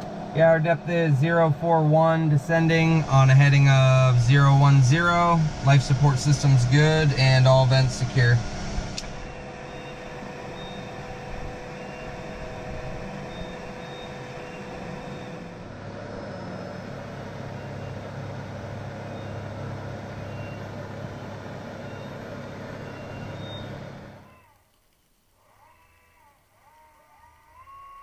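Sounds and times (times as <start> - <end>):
high steady tone: 0.0 - 15.6
machinery hum and hiss: 0.0 - 24.2.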